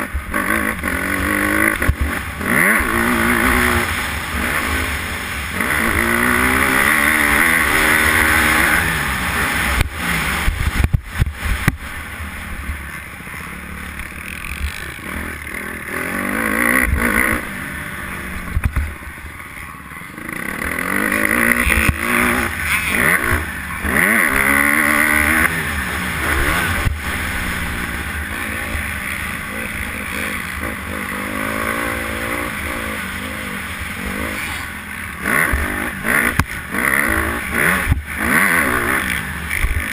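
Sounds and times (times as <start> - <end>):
motocross bike engine revving: 0.0 - 39.9
wind noise: 8.4 - 12.9
sharp thumps: 18.5 - 19.0.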